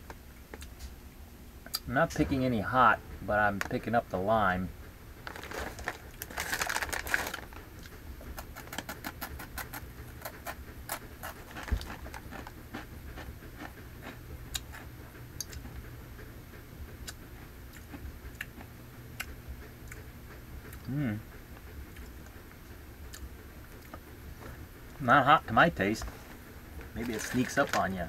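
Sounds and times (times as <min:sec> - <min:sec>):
chip bag crinkling: 0:05.2 - 0:14.9, 0:26.0 - 0:28.0
chips being crunched: 0:05.3 - 0:07.6, 0:08.3 - 0:13.3, 0:27.0 - 0:28.0.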